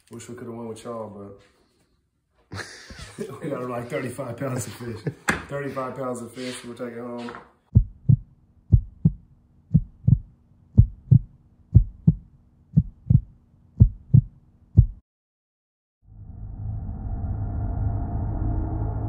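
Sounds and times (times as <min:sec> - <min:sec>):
heartbeat thumps: 0:07.7 - 0:15.0
low sustained drone: 0:16.1 - 0:19.0.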